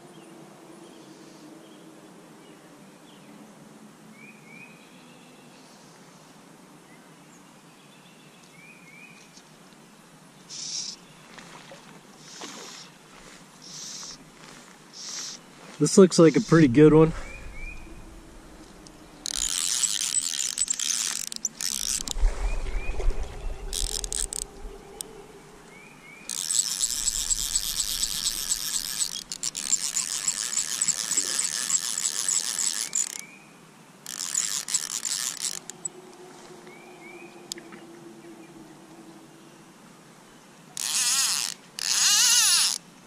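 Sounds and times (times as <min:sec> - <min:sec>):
fishing reel drag clicking: 0:13.6 - 0:14.2, 0:15.0 - 0:15.4, 0:17.4 - 0:22.2, 0:23.5 - 0:25.2, 0:26.3 - 0:33.2, 0:34.0 - 0:36.0, 0:40.8 - 0:42.8.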